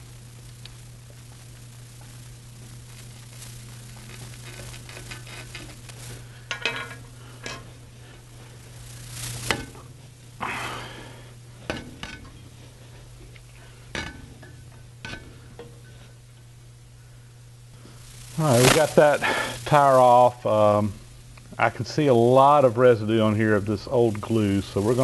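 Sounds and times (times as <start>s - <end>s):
steady low hum: 0.0s - 25.0s
sharp snaps and clicks: 0.5s - 1.2s.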